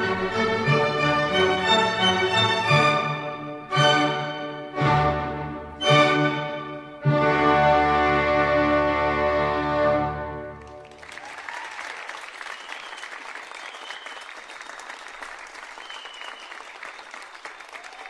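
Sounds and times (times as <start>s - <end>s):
orchestral chord: 0.0s - 10.6s
audience applauding: 10.6s - 18.0s.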